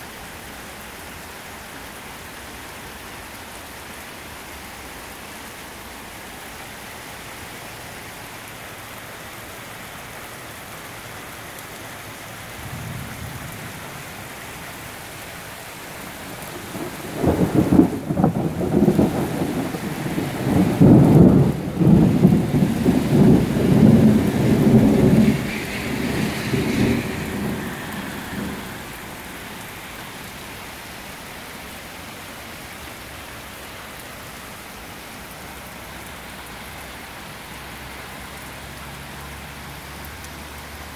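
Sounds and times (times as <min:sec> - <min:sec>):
rain hissing: 0:00.0 - 0:40.9
thunder rumbling: 0:16.2 - 0:29.7.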